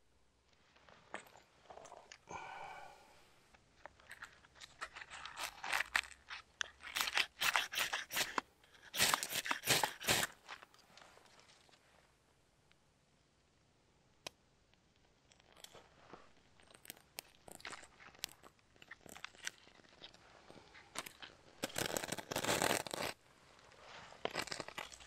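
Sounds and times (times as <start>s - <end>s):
knife shaving dry stick: 4.8s - 10.6s
kindling crunching: 24.1s - 25.0s.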